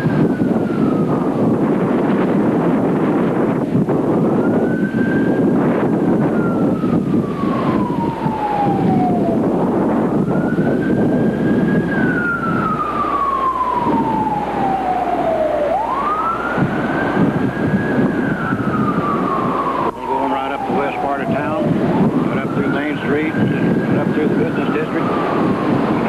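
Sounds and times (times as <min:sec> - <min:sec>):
siren wailing: 0:00.0 - 0:26.0
wind rumble: 0:00.0 - 0:26.0.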